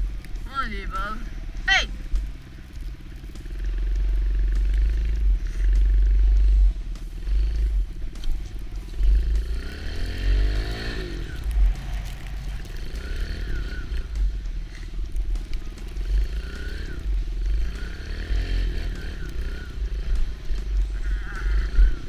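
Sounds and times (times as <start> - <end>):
small motorcycle engine revving: 7.1 - 15.0, 15.7 - 22.0.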